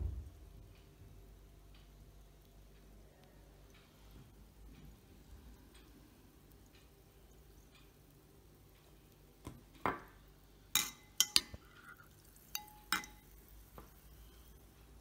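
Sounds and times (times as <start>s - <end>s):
teaspoon clinking in glass: 10.8s - 13.3s.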